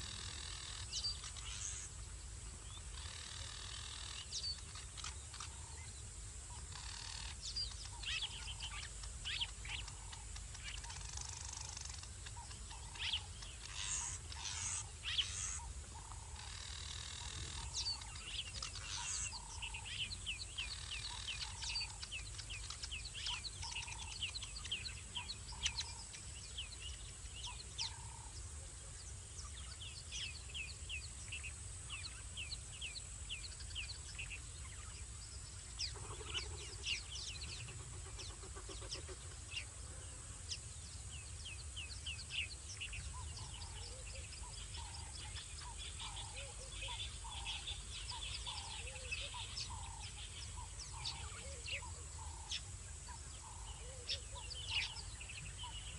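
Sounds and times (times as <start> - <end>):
small animals chirping: 6.6 - 19.6.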